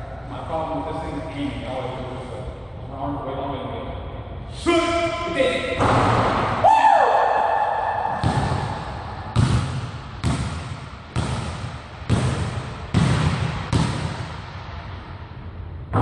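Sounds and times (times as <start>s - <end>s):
basketball bouncing on hardwood floor: 8.2s - 14.4s.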